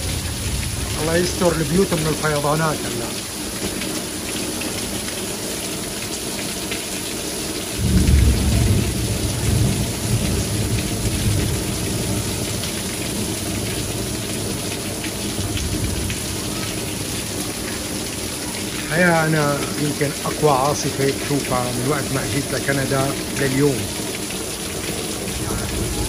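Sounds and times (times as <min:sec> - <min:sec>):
heavy rain on lawn and pavement: 0:00.0 - 0:26.0
thunder clap rumbling: 0:07.8 - 0:14.7, 0:24.8 - 0:26.0.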